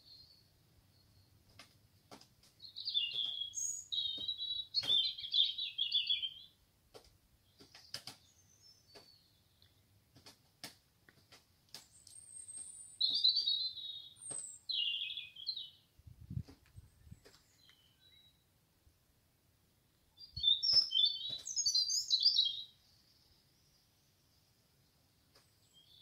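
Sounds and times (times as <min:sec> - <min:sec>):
nightingale singing: 0:00.0 - 0:01.4, 0:02.6 - 0:06.6, 0:07.4 - 0:09.7, 0:11.8 - 0:18.5, 0:20.0 - 0:24.3, 0:25.4 - 0:26.0.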